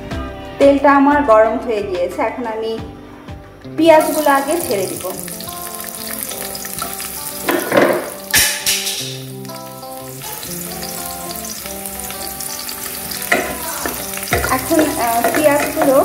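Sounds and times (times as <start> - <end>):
onions sizzling in hot oil: 3.8 - 16.0.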